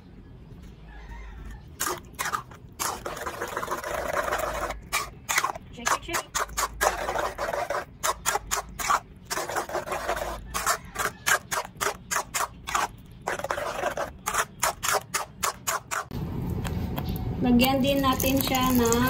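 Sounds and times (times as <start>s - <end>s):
spoon scraping metal pan: 1.8s - 16.1s.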